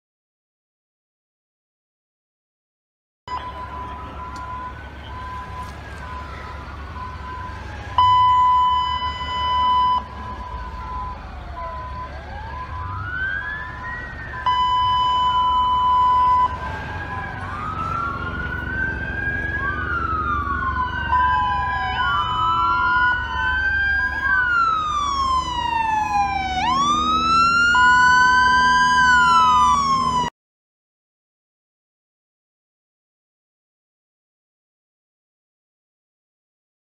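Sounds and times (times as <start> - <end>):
emergency sirens wailing: 3.3 - 30.3
low engine rumble: 3.3 - 30.3.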